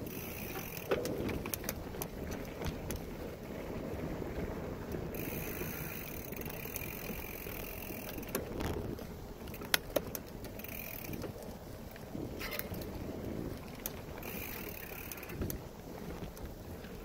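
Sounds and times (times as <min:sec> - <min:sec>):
bicycle tyre rumble and rattle: 0:00.0 - 0:17.0.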